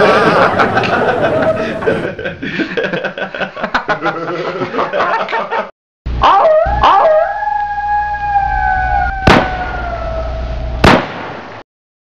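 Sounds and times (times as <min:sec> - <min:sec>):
dog-like howl: 0:00.0 - 0:02.0, 0:06.2 - 0:10.8.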